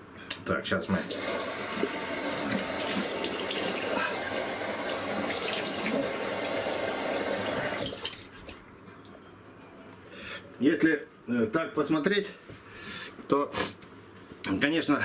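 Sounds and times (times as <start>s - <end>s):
water running from a tap: 1.0s - 8.3s.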